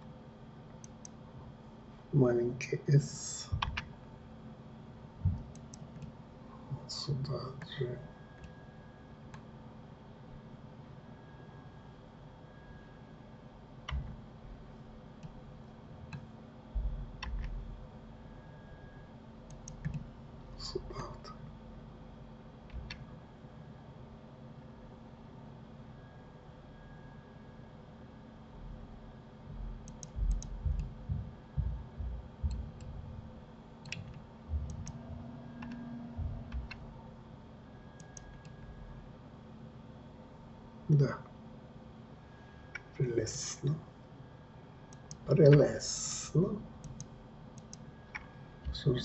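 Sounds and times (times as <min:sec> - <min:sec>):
faint hum: 0:00.0 - 0:49.0
low thumps: 0:30.2 - 0:33.2
mouse and keyboard clicks: 0:46.8 - 0:48.3.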